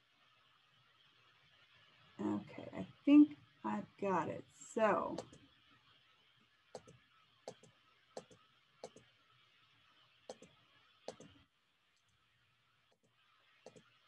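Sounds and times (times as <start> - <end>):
computer mouse clicking: 5.2 - 5.4, 6.8 - 9.1, 10.3 - 11.4, 13.7 - 13.9.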